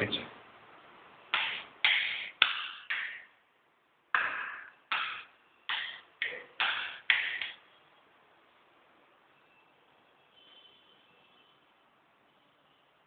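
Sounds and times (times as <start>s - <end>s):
sharp knocks in tiled room: 1.3s - 3.4s, 4.1s - 7.6s.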